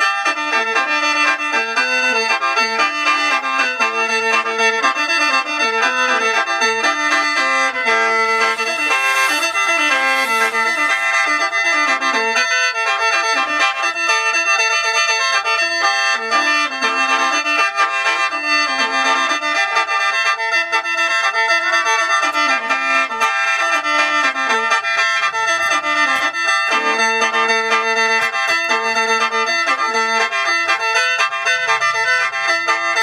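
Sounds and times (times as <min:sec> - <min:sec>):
instrumental melody: 0:00.0 - 0:33.0
held drone tones: 0:06.1 - 0:14.5.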